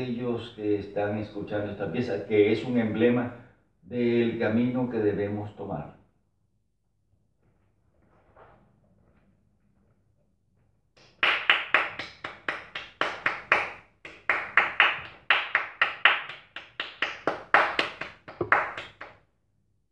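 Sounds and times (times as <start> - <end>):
person clapping hands: 11.0 - 19.2.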